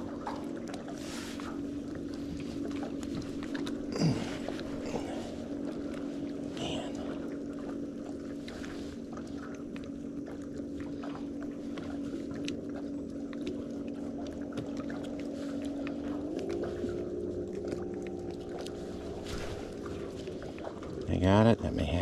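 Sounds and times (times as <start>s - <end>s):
boat motor humming: 0.0s - 22.0s.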